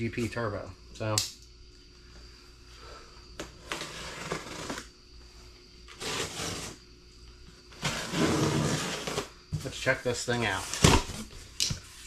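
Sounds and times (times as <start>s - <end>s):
cardboard box rustling and scraping: 5.9s - 6.8s, 7.8s - 9.7s.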